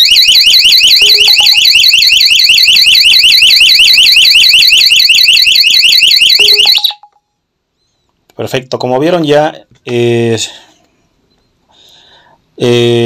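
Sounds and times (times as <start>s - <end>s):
warbling alarm siren: 0.0s - 7.1s.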